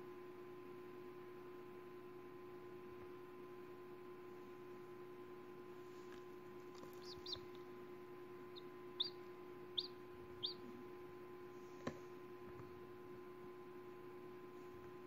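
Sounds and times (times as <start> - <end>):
faint steady hum: 0.0 - 15.0
chick peeping: 6.7 - 7.6, 8.4 - 10.8.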